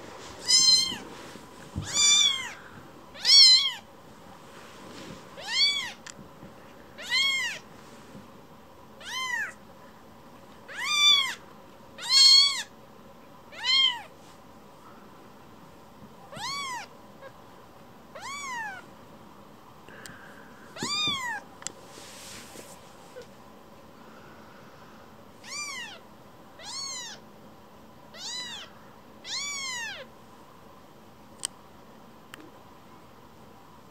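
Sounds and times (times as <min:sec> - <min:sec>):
kitten mewing: 0:16.3 - 0:17.4, 0:18.2 - 0:18.8, 0:20.8 - 0:21.4, 0:28.1 - 0:30.1.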